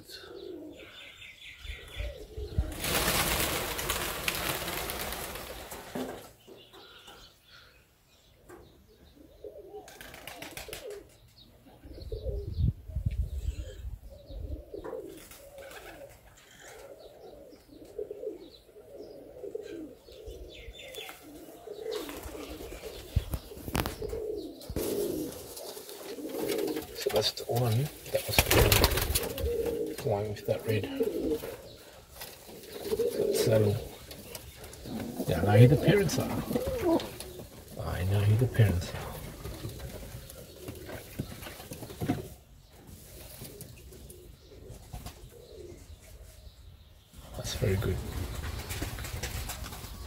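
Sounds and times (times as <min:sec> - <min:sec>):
pigeons cooing: 0:00.0 - 0:07.7, 0:08.3 - 0:50.0
wing flapping: 0:02.6 - 0:06.4, 0:09.9 - 0:11.0, 0:24.8 - 0:30.0, 0:47.8 - 0:50.0.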